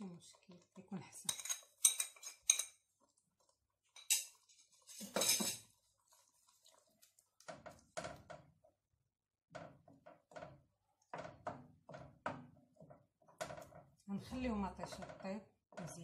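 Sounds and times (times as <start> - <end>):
wooden spoon scraping a pot: 0.0 - 8.7.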